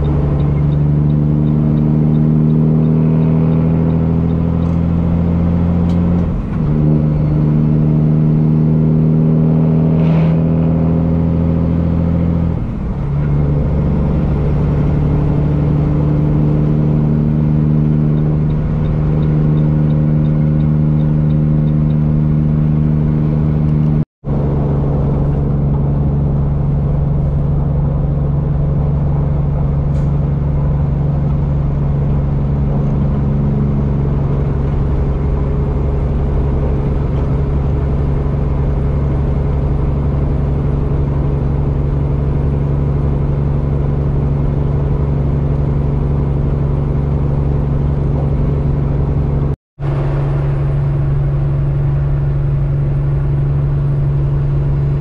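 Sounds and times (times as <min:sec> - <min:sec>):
diesel truck exhaust drone: 0:00.0 - 0:55.0.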